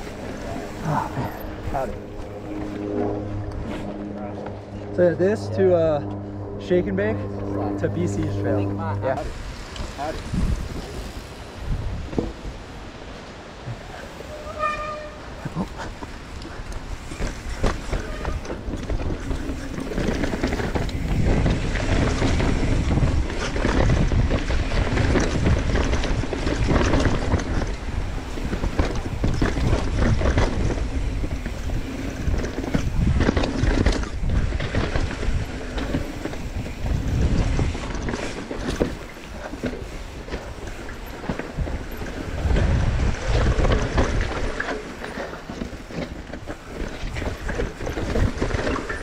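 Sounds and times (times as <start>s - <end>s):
wind buffeting microphone: 0.0s - 49.0s
bike knocks and rattles: 12.0s - 12.5s, 17.0s - 49.0s
tyres rolling over dirt: 13.8s - 49.0s.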